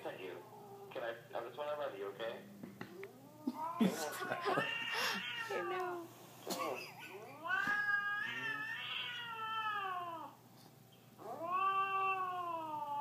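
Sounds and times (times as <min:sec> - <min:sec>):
cat yowling: 0:03.1 - 0:06.1, 0:07.0 - 0:10.4, 0:11.2 - 0:13.0.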